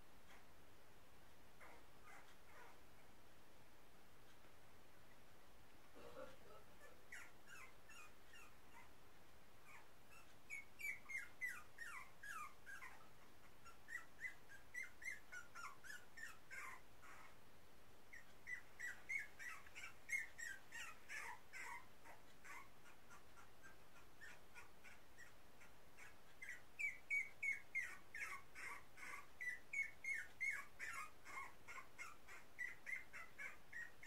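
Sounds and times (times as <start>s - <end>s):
puppies whimpering and squeaking: 1.6s - 2.8s, 6.8s - 8.9s, 9.6s - 17.4s, 18.1s - 34.0s.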